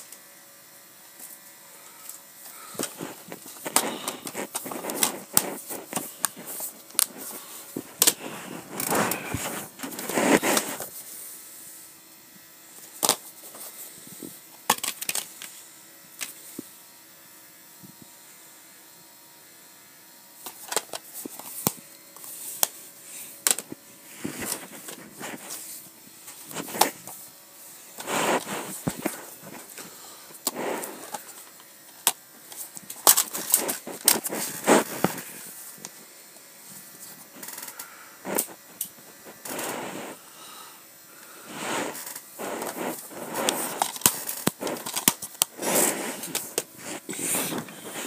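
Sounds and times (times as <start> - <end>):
rustling: 2.5 - 11.1, 23.2 - 31.5
plastic cases clicking and snapping: 43.8 - 45.5.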